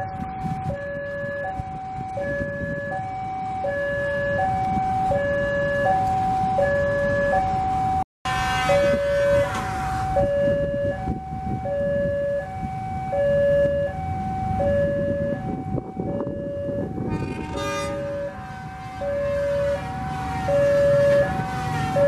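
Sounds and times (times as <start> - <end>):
level crossing two-tone alarm: 0.0 - 22.0
diesel locomotive rumbling past: 4.8 - 11.6, 13.5 - 22.0.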